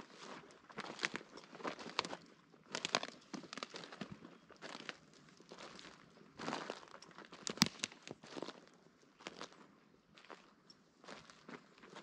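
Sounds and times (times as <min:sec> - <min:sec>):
footsteps crunching through dry leaves: 0:00.1 - 0:05.0.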